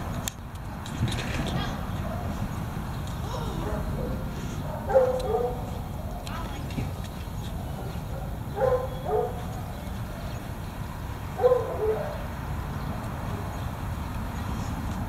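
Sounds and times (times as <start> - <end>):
steady low rumble: 0.0 - 11.4
dog barking: 3.6 - 6.3, 7.8 - 9.7, 11.4 - 12.2.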